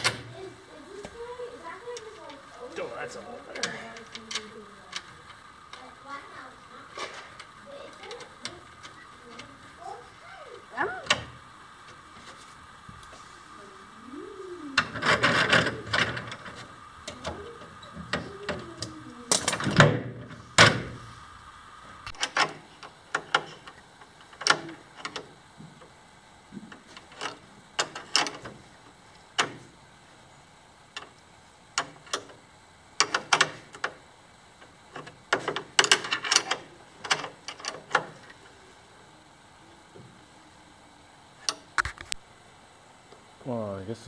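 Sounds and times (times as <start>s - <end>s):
metal scraping and rattling: 14.8s - 17.3s.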